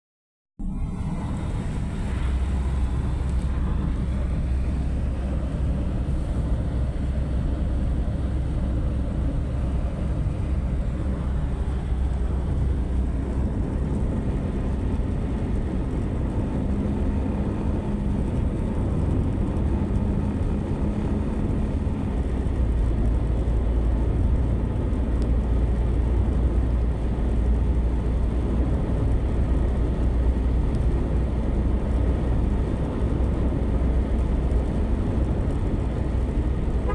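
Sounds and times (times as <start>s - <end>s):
tyres rumbling on asphalt: 0.6s - 36.9s.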